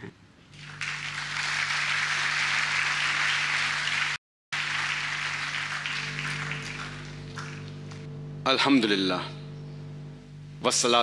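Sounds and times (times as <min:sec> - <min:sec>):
faint steady hum: 0:00.0 - 0:11.0
large audience applauding: 0:00.5 - 0:08.1.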